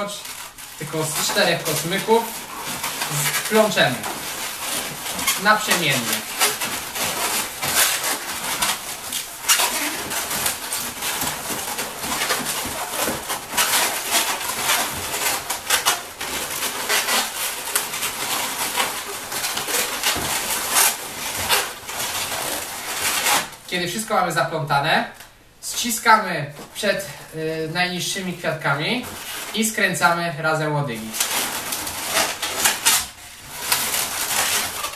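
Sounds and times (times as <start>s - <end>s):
balloons squeaking and rubbing: 0.0s - 34.9s.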